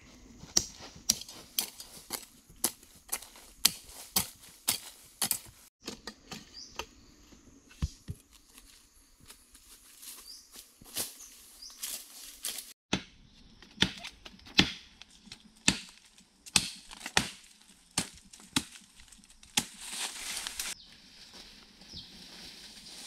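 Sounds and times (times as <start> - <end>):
hoe chopping dry earth: 0.5 - 7.0, 12.9 - 20.8.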